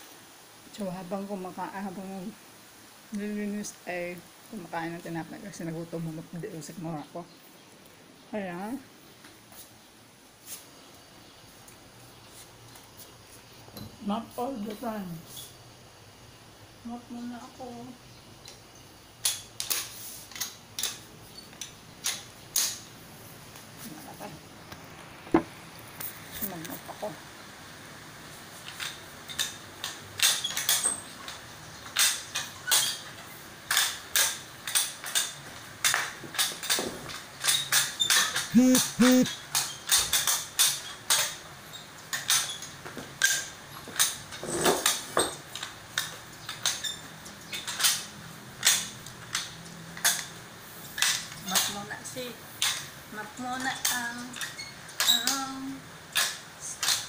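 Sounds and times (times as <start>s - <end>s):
metal chairs shifting: 19.2s - 23.0s, 28.4s - 53.0s
mop clacking on tiled floor: 28.6s - 41.5s, 42.1s - 51.9s.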